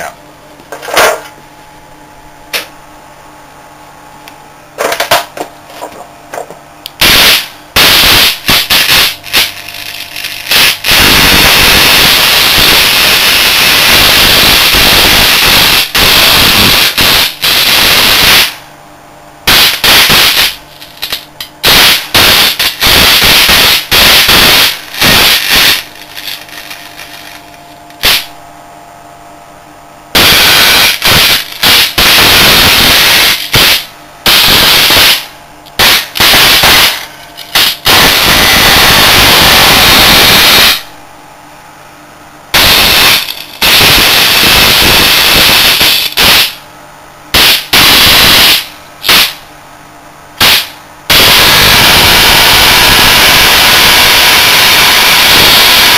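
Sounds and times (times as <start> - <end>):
low steady hum: 0.0 - 10.9, 18.5 - 22.9, 24.7 - 30.2, 33.4 - 34.3, 35.2 - 37.9, 40.8 - 42.6
electric arcs crackling: 7.0 - 18.7, 19.5 - 28.4, 30.1 - 41.0, 42.5 - 46.6, 47.3 - 49.5, 50.4 - 55.9.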